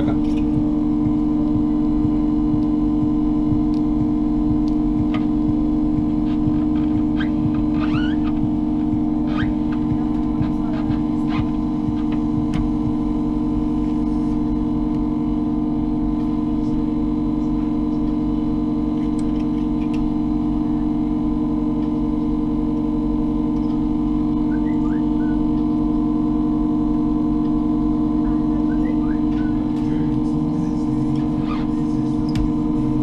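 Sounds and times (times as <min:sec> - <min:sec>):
electrical hum: 0:00.0 - 0:33.0.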